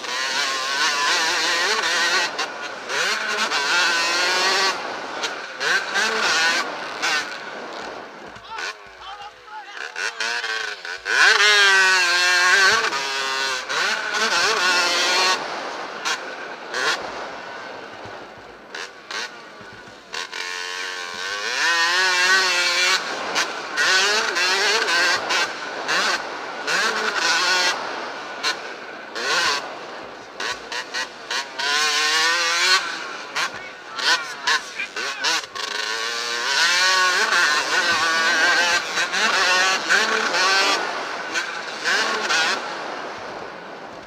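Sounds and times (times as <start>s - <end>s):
two-stroke motorbike engine revving: 0.0s - 44.0s.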